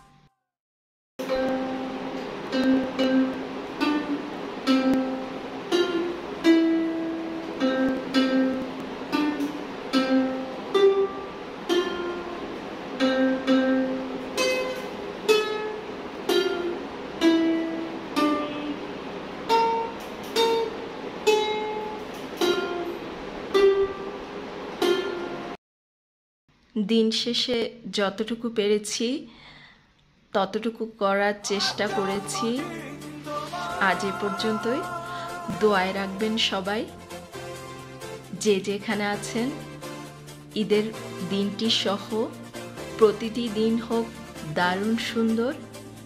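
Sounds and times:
ukulele plucked melody: 0:01.2 - 0:24.2, 0:24.8 - 0:25.6.

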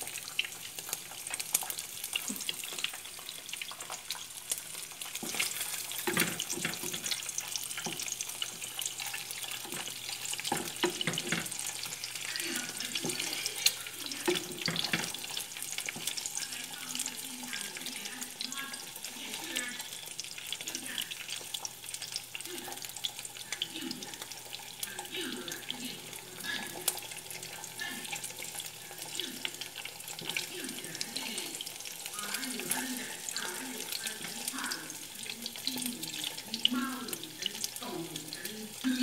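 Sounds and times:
eggs sizzling in hot oil: 0:00.0 - 0:39.0
wooden spatula knocking and scraping: 0:05.2 - 0:07.2, 0:10.5 - 0:11.5.

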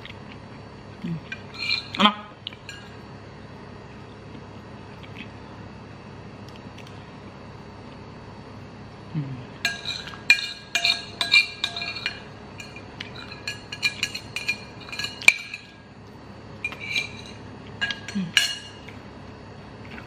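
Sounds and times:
spoon and chopsticks clinking bowl: 0:01.3 - 0:03.0, 0:09.7 - 0:15.9, 0:16.6 - 0:19.0.

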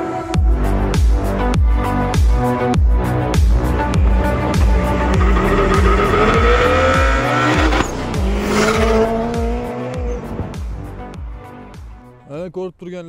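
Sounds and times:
music with steady beat: 0:00.4 - 0:12.2
car engine accelerating: 0:03.0 - 0:11.1.

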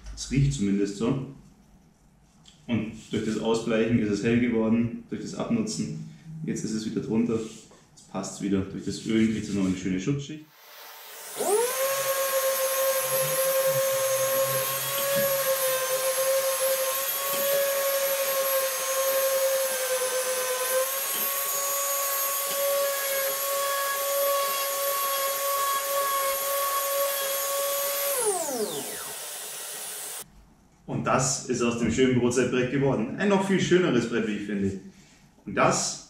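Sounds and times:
electric sander sanding wood: 0:10.5 - 0:30.2.

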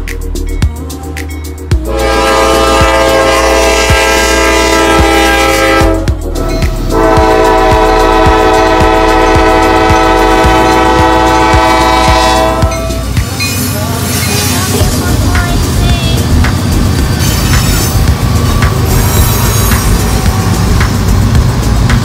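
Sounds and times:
locomotive low rumble: 0:01.7 - 0:22.0
locomotive air horn blasts: 0:01.8 - 0:06.2, 0:06.9 - 0:13.0.

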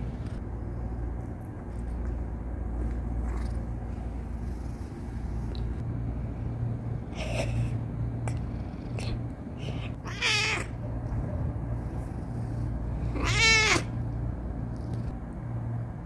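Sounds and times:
low steady rumble: 0:00.0 - 0:16.0
cat meowing: 0:10.0 - 0:10.8, 0:13.1 - 0:13.9.

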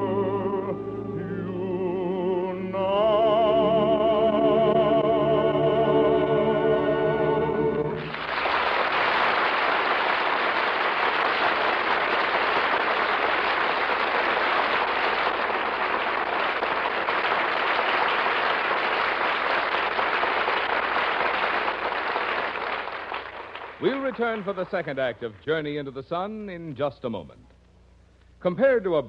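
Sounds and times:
audience applauding: 0:08.0 - 0:24.9.

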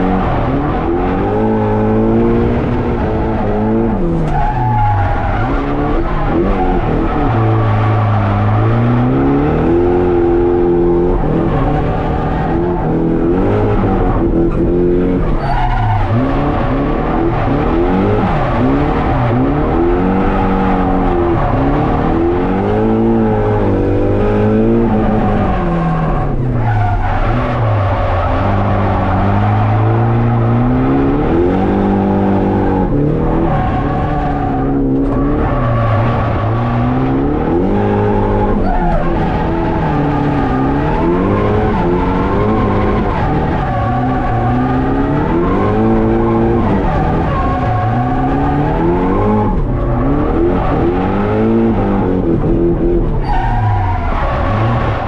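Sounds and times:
car engine revving hard: 0:00.0 - 0:55.0
tyre squeal: 0:15.2 - 0:16.7, 0:37.7 - 0:49.7, 0:53.1 - 0:55.0.

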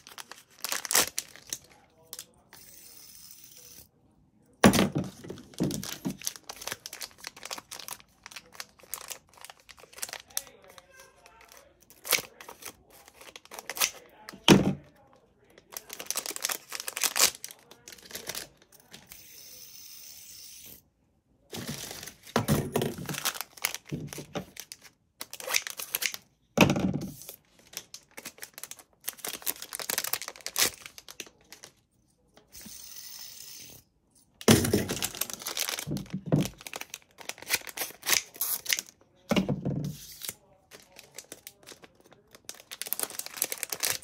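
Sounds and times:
plastic bags crinkling and tearing: 0:00.0 - 0:02.3, 0:05.0 - 0:14.8, 0:15.5 - 0:18.7, 0:21.5 - 0:26.2, 0:27.2 - 0:31.8, 0:34.4 - 0:39.0, 0:39.9 - 0:44.0.

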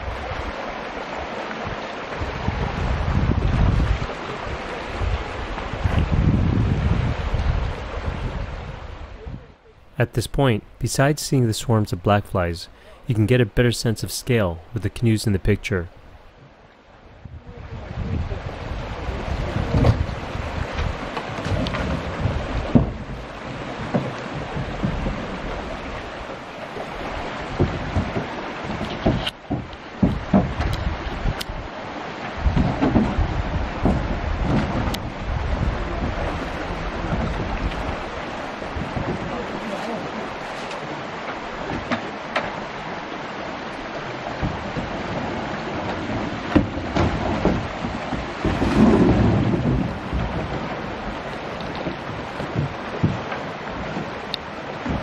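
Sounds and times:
rushing creek water: 0:00.0 - 0:55.0
wind buffeting microphone: 0:01.6 - 0:09.7, 0:17.0 - 0:41.9, 0:43.8 - 0:55.0
dull knocks: 0:20.7 - 0:25.4, 0:27.5 - 0:30.9, 0:32.5 - 0:35.0, 0:45.8 - 0:50.7, 0:51.7 - 0:54.1.

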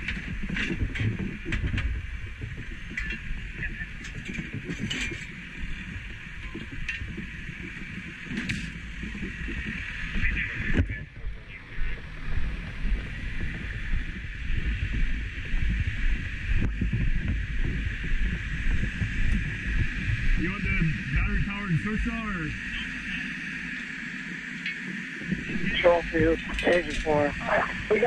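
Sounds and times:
diesel engine rumbling: 0:25.4 - 0:28.0.

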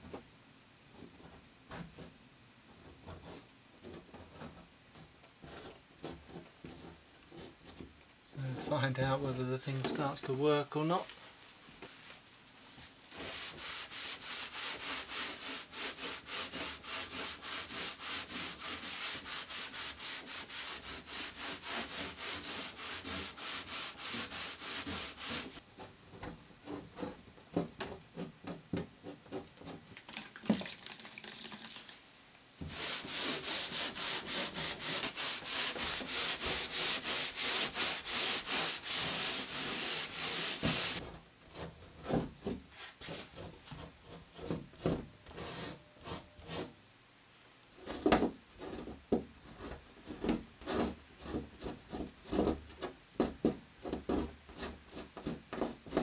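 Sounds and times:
scrubbing on a painted panel: 0:12.8 - 0:25.6, 0:32.6 - 0:46.7, 0:47.8 - 0:56.0.

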